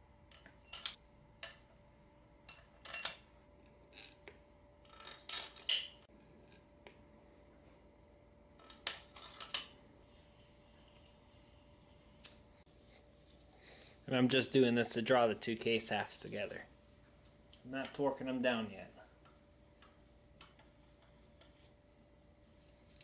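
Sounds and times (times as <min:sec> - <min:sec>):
metal bolts and washers clinking: 0:00.3 - 0:01.7, 0:02.4 - 0:04.2, 0:04.8 - 0:06.0, 0:08.6 - 0:09.8.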